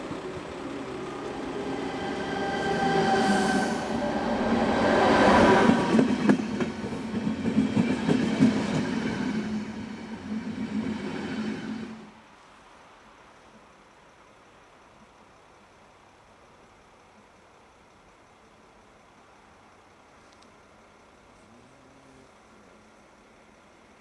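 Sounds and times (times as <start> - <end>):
electric train whining: 0.0 - 12.2.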